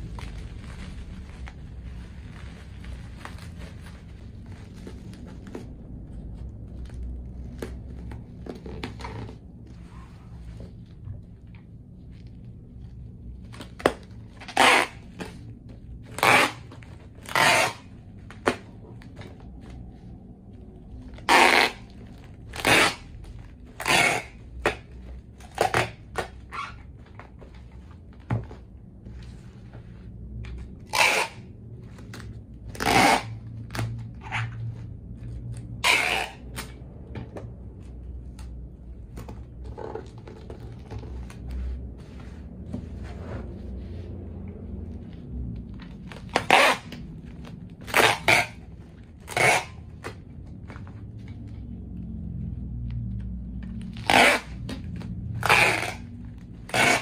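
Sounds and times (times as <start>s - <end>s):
packing tape ripping off dispenser: 16.1s - 18.6s, 21.2s - 24.8s, 30.8s - 31.5s, 32.7s - 33.9s, 35.8s - 36.8s.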